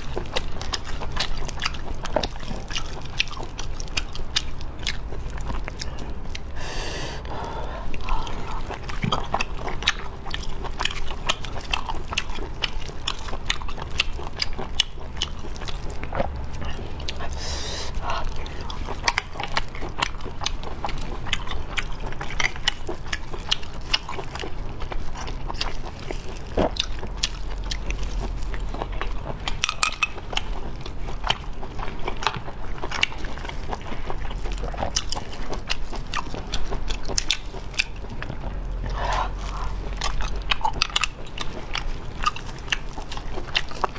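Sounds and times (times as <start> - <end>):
chewing with small clicks: 0.0 - 6.6, 7.2 - 43.9.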